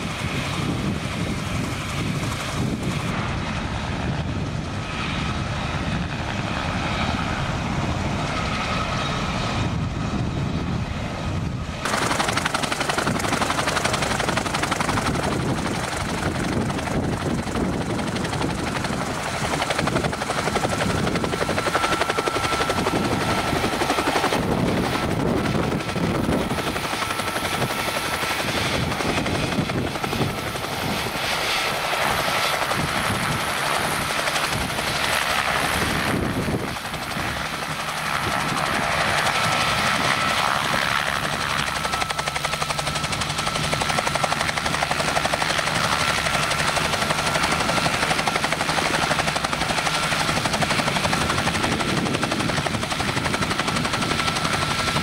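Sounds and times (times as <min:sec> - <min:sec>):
helicopter hovering: 0:00.0 - 0:55.0.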